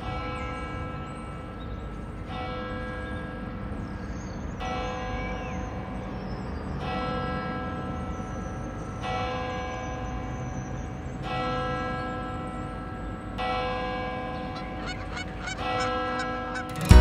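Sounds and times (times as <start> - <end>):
church bell tolling: 6.8 - 17.0.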